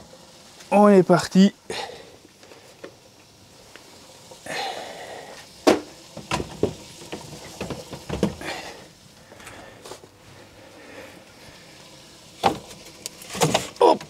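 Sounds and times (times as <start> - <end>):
oven rack knocking and rattling: 5.6 - 8.4.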